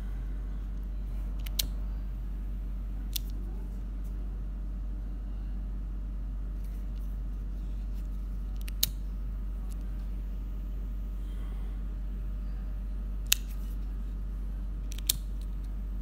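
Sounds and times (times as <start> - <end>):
low steady hum: 0.0 - 16.0
faint handling clicks: 0.7 - 1.8, 3.1 - 4.2, 7.8 - 9.0, 13.2 - 13.9, 14.8 - 15.8.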